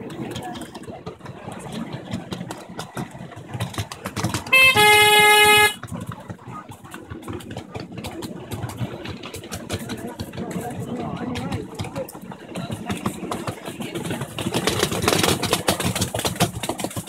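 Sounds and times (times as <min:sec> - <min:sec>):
train rumbling on track: 0:00.0 - 0:17.0
locomotive horn toot: 0:04.4 - 0:05.8.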